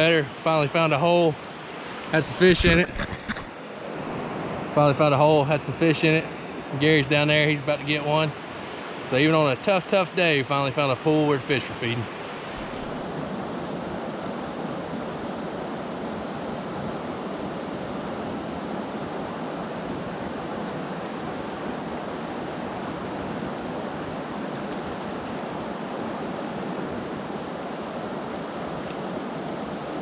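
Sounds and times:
creek rushing over riffles: 6.3 - 13.0.

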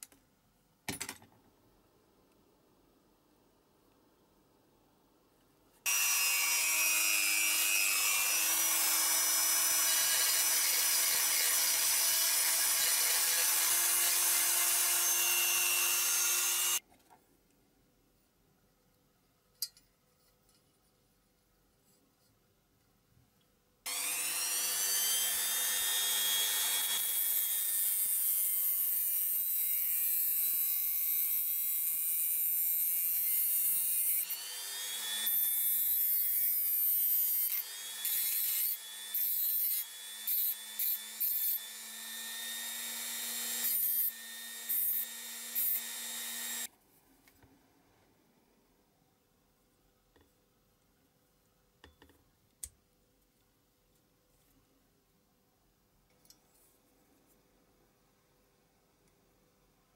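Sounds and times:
rotary tool whining and grinding: 5.9 - 16.8, 23.9 - 28.6, 32.9 - 46.7.

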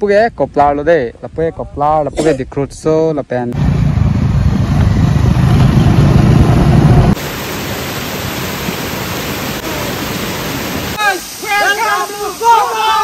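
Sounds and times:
motorcycle engines rumbling: 3.6 - 7.2
wind on microphone: 3.6 - 7.2
waterfall rushing: 7.1 - 13.0.

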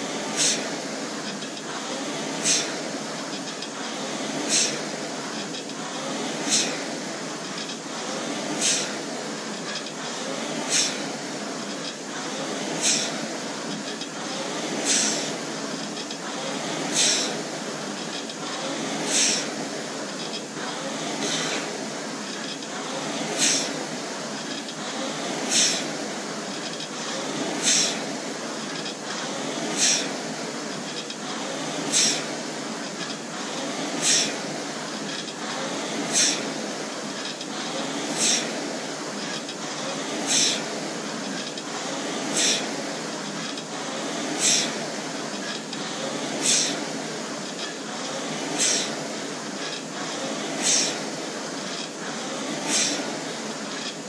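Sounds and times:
rowing machine flywheel whirring: 0.0 - 54.0
sharp whoosh of rowing stroke: 0.0 - 54.0
short sharp hiss: 4.4 - 4.8, 18.4 - 19.5, 48.2 - 49.0, 52.6 - 53.0.

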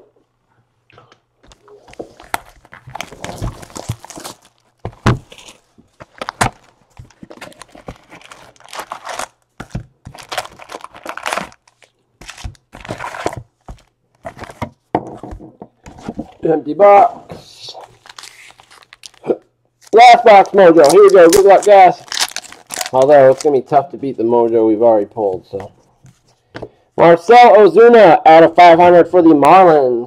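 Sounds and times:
cardboard box being opened: 1.9 - 11.6
foil packs crinkling and clacking: 1.9 - 14.6, 17.9 - 23.6.

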